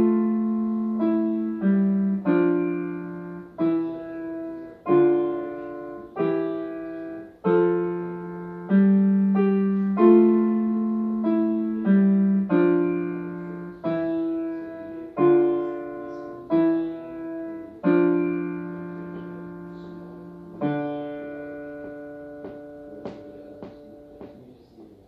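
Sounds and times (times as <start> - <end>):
slow piano notes: 0.0 - 25.0.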